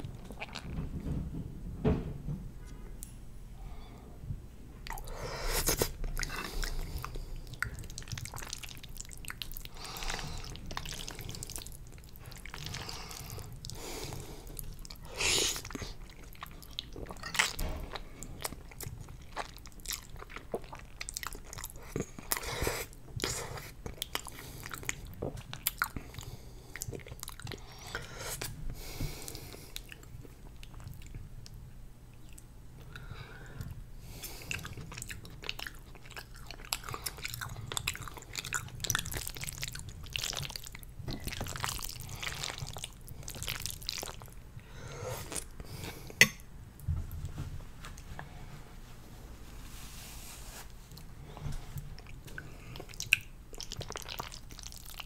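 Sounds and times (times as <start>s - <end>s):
chewing noodles: 4.8s - 28.6s, 33.6s - 44.4s, 51.8s - 55.0s.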